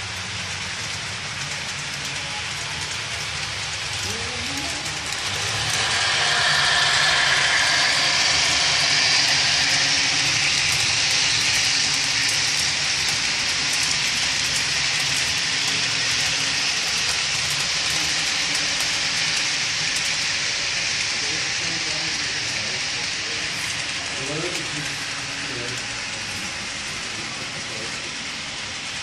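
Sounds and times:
diesel engine drone: 0.0s - 28.8s
model train wheels rattling: 0.0s - 29.0s
wheel clicks over rail joints: 10.6s - 20.8s.

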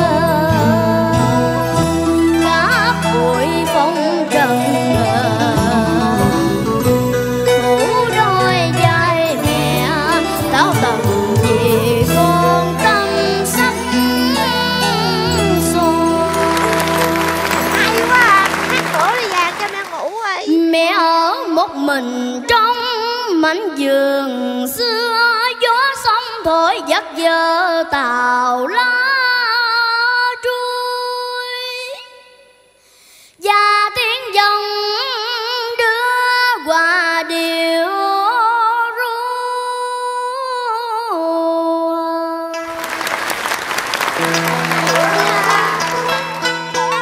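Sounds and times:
girl singing: 0.0s - 32.4s, 33.4s - 42.6s, 44.9s - 46.1s
audience applause: 15.3s - 20.4s, 42.6s - 47.0s.

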